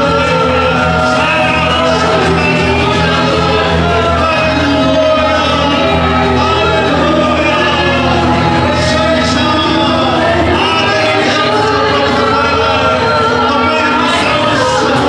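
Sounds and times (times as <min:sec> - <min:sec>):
band accompaniment: 0:00.0 - 0:15.0
voices singing: 0:00.0 - 0:15.0.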